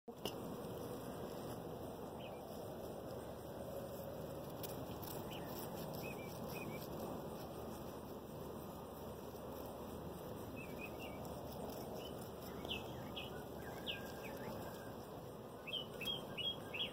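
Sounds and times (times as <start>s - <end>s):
outdoor background hiss: 0.1s - 16.9s
faint high chirps: 10.5s - 16.9s.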